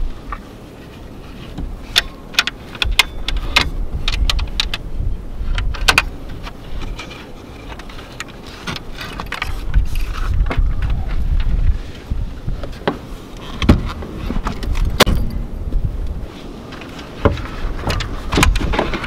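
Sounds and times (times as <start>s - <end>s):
wind rumble on microphone: 0.0s - 19.0s
wooden knocks and clatters: 5.5s - 11.7s, 12.5s - 15.4s, 16.7s - 19.0s.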